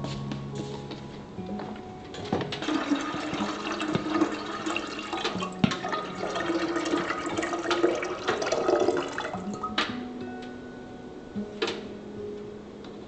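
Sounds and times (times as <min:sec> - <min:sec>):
water pouring into a kettle: 0:02.6 - 0:09.7.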